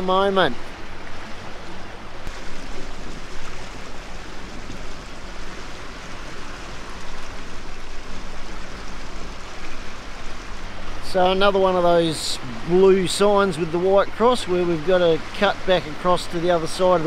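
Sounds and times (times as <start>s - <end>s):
low motor hum: 0.0s - 17.0s
water rushing past hull: 0.0s - 17.0s.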